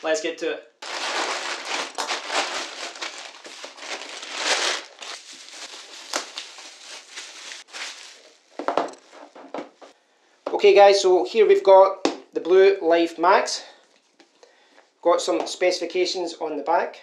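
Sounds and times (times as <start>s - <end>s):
bubble wrap crinkling: 0.8s - 9.5s.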